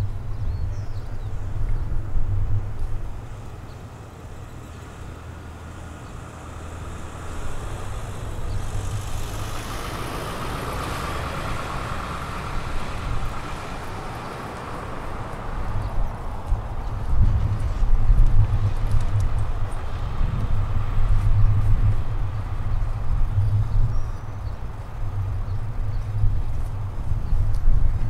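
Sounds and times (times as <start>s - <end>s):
car driving past: 4.2s - 17.9s.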